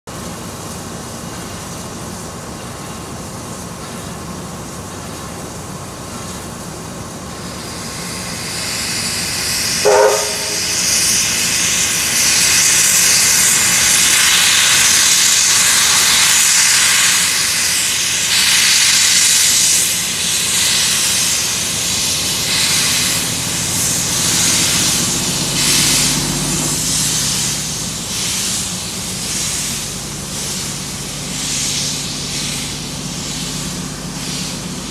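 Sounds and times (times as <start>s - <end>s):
steam locomotive hissing: 5.8s - 34.9s
steam venting from cylinders: 6.4s - 34.9s
steam whistle toot: 9.7s - 11.4s.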